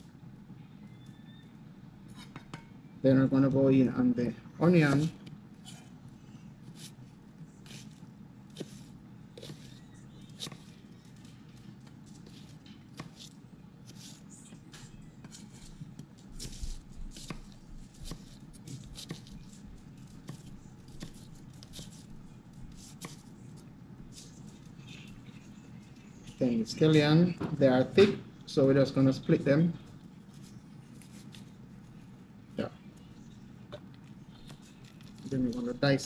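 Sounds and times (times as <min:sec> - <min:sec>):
steady low hum: 0:00.0 - 0:36.0
knife cutting on wooden board: 0:07.6 - 0:09.8.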